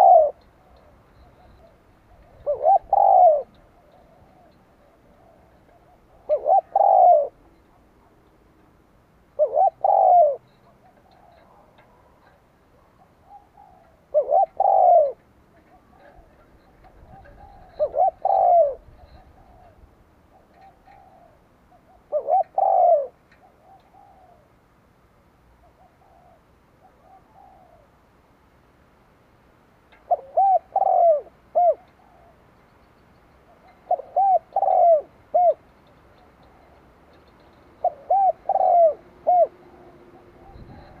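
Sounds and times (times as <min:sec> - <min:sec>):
dove cooing: 0:00.0 - 0:08.3, 0:09.3 - 0:24.6, 0:25.6 - 0:28.0, 0:29.9 - 0:32.5, 0:33.4 - 0:41.0.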